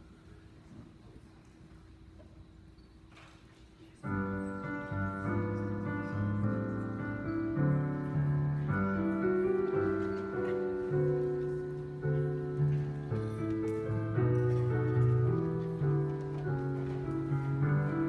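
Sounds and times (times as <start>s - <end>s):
slow piano chords: 4.0s - 18.0s.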